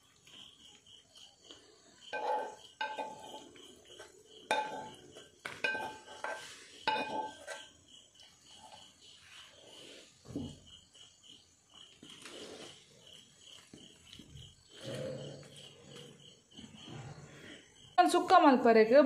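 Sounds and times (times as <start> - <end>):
cricket chirping: 0.0 - 19.0
metal spoon clinking: 2.1 - 3.6, 4.5 - 7.7.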